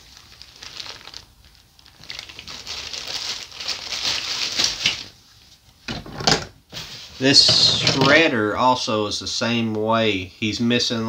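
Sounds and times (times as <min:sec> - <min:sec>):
plastic bag crinkling: 0:00.0 - 0:05.2.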